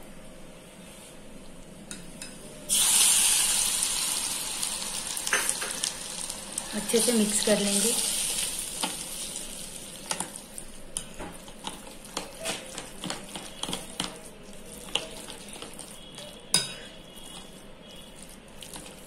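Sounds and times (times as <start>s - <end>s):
spoon stirring thick batter: 10.1s - 19.0s
spoon clinking on glass bowl: 16.2s - 17.4s.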